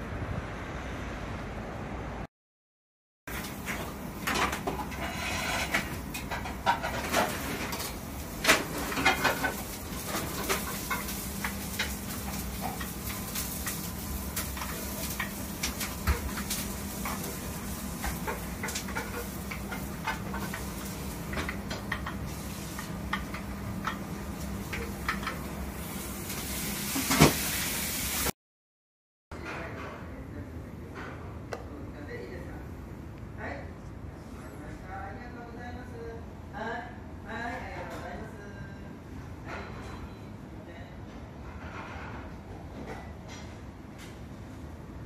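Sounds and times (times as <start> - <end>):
eel sizzling on a grill: 8.1 - 28.3.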